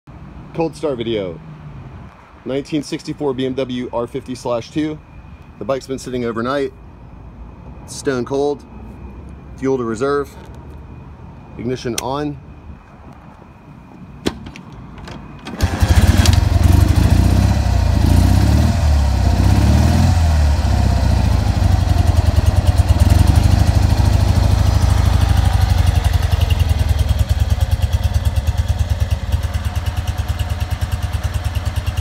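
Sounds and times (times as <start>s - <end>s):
motorcycle engine kick-started: 15.4s - 18.0s, 20.2s - 32.0s.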